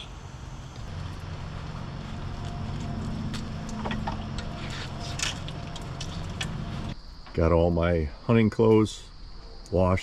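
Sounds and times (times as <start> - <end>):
low mechanical hum: 0.0 - 7.0.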